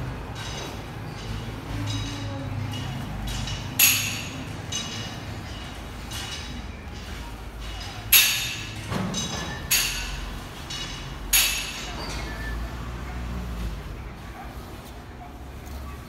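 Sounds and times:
weight machine plates clanking: 0:00.0 - 0:12.6.

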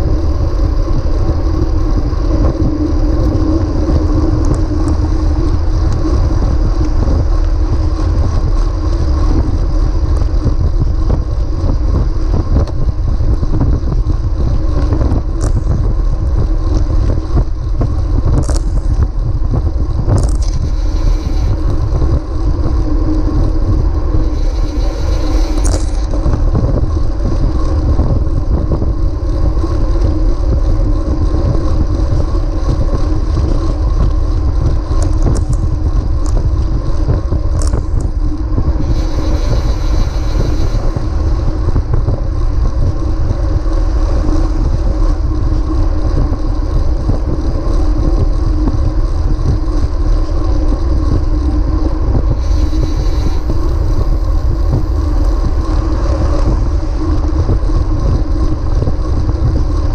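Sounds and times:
steady humming tones: 0:00.0 - 0:59.9
wind and road noise rumble: 0:00.0 - 0:59.9
hissy swells: 0:23.9 - 0:26.4, 0:38.7 - 0:41.6, 0:52.3 - 0:57.3.

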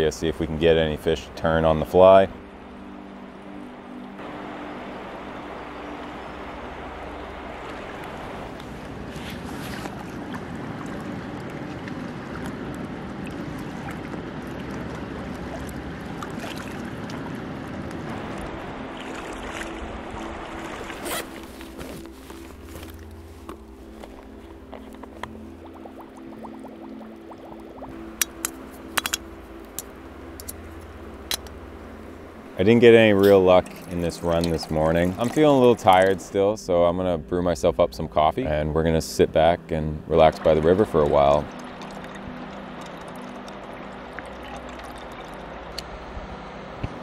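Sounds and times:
low steady hum: 0:00.0 - 0:47.0
river water rushing over rocks: 0:04.2 - 0:21.8.

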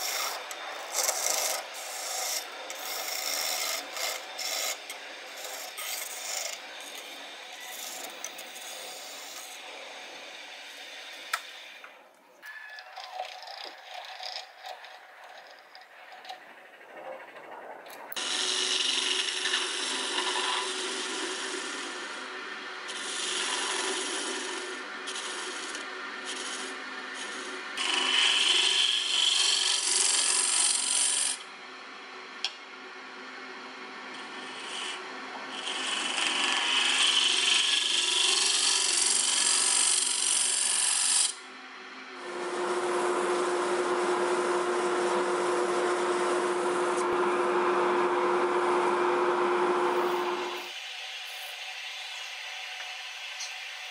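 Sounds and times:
sandpaper rubbing spinning wood: 0:00.0 - 0:09.6, 0:22.9 - 0:31.4, 0:49.8 - 0:51.7
gouge cutting spinning wood: 0:00.0 - 0:11.8, 0:18.2 - 0:31.4, 0:34.2 - 0:41.4, 0:42.2 - 0:53.9
lathe humming: 0:00.0 - 0:12.0, 0:18.2 - 0:31.4, 0:33.5 - 0:41.3, 0:42.0 - 0:53.9.

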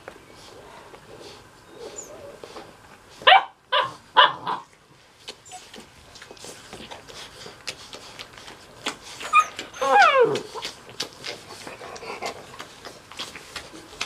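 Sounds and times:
puppy barking: 0:03.2 - 0:04.6.

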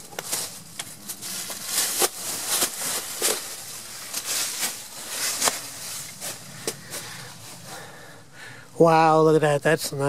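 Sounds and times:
footsteps crunching through dry leaves: 0:00.0 - 0:07.8.

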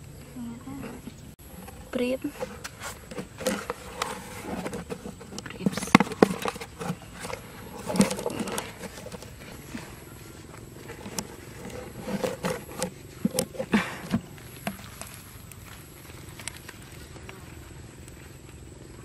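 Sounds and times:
cardboard knocks and rustles: 0:02.3 - 0:09.8.

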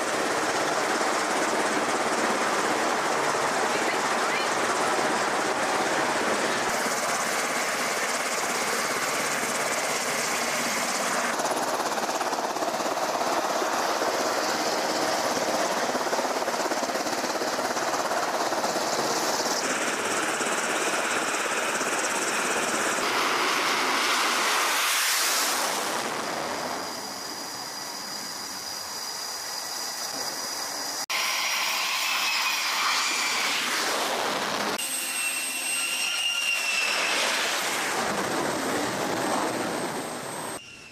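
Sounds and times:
jet engine whine: 0:00.0 - 0:40.9
jet engines and wind rushing: 0:00.0 - 0:40.9.

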